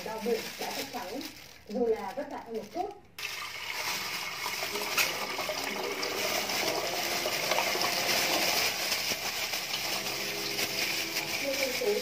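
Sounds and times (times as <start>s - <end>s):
tap water running into metal pot: 3.2s - 11.7s.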